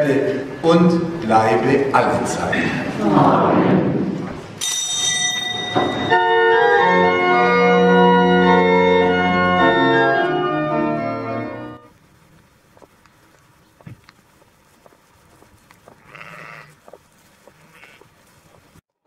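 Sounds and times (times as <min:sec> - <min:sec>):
organ playing sustained chords: 0:05.1 - 0:12.0.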